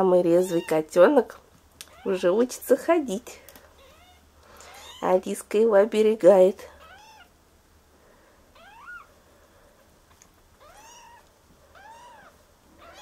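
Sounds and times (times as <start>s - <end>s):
kittens mewing: 3.8s - 5.0s, 6.8s - 7.4s, 8.5s - 9.1s, 10.6s - 13.0s.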